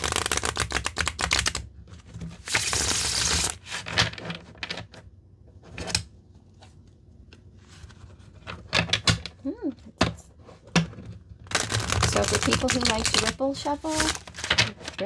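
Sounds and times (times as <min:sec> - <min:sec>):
cards riffle-shuffled: 0:00.0 - 0:01.7, 0:02.3 - 0:03.9, 0:11.5 - 0:15.0.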